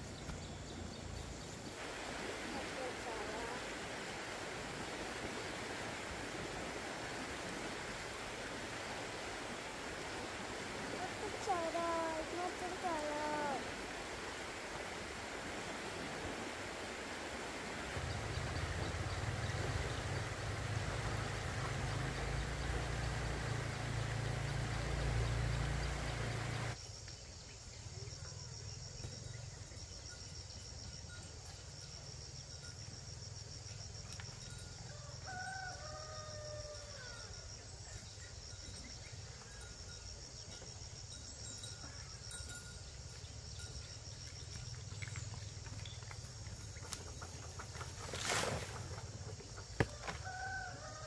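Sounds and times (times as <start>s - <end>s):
insects chirping: 0.0s - 51.0s
rooster crowing: 34.9s - 37.3s, 49.9s - 51.0s.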